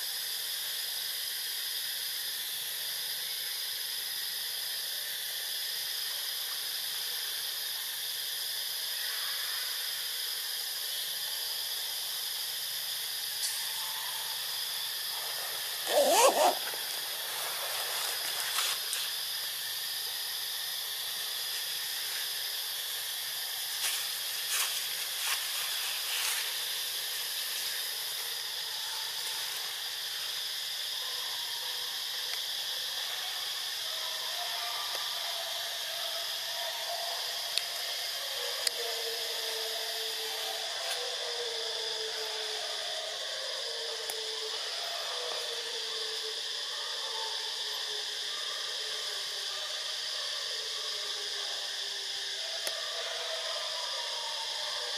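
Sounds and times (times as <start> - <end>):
forest ambience hiss: 0.0 - 54.9
wavering animal call: 15.8 - 17.1.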